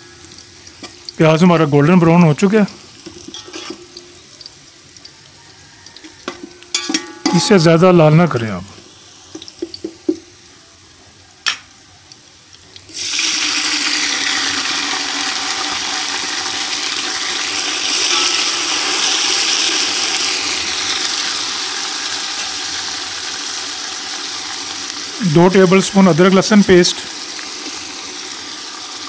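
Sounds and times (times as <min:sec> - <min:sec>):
onions sizzling in oil: 0:00.0 - 0:29.0
water hissing in hot oil: 0:00.0 - 0:29.0
knock on pot: 0:09.4 - 0:10.3.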